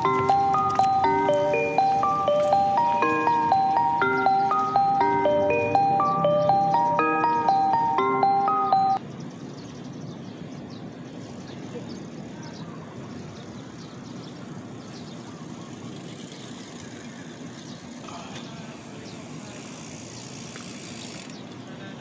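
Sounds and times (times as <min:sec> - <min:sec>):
chiming mallet percussion tune: 0:00.0 - 0:09.0
outdoor background noise: 0:00.0 - 0:22.0.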